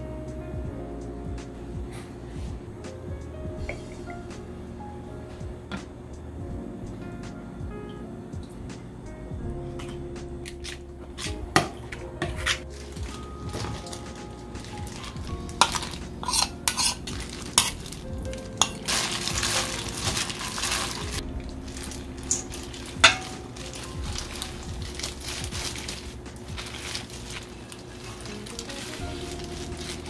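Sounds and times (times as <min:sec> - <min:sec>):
wet squishing: 0:12.6 - 0:30.0.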